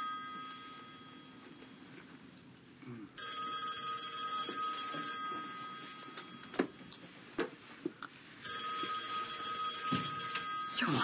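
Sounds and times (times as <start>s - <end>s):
telephone ringing: 0.0s - 2.0s, 3.2s - 7.1s, 8.4s - 11.0s.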